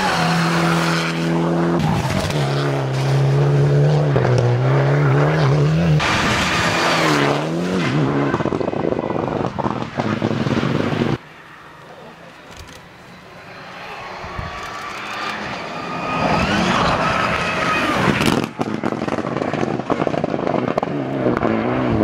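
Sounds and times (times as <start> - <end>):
rally car engine at full throttle: 0.0 - 12.3, 13.2 - 22.0
loud rushing noise: 5.9 - 11.5.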